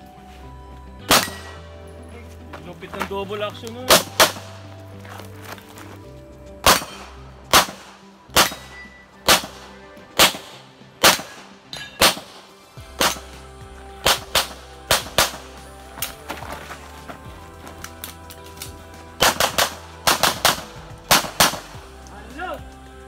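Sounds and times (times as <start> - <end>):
background music: 0.0 - 23.0
handgun shots: 1.1 - 1.6, 3.9 - 4.6, 6.6 - 12.4, 13.0 - 13.3, 14.0 - 15.4, 19.2 - 21.7.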